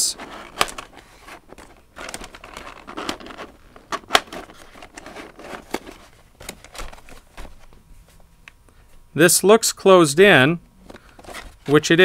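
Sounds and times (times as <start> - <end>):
plastic lampshade rustling and crinkling: 0.0 - 7.8.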